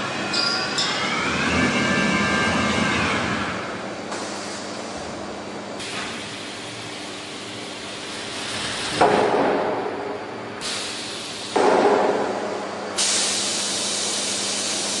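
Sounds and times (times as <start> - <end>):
machinery hum: 0.0 - 15.0
heavy machine clunks: 11.6 - 12.5
loud hiss: 13.0 - 15.0.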